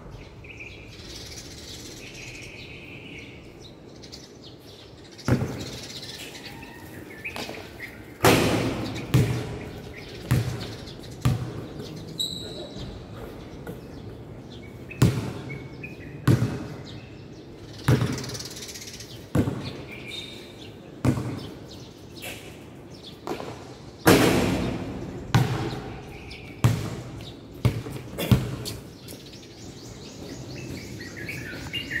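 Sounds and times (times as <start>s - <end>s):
birds chirping faintly: 0.0s - 32.0s
basketball bouncing on concrete: 5.3s - 5.8s, 8.2s - 12.0s, 15.0s - 15.4s, 16.2s - 16.8s, 17.8s - 18.4s, 19.3s - 19.8s, 21.0s - 21.5s, 23.2s - 28.8s.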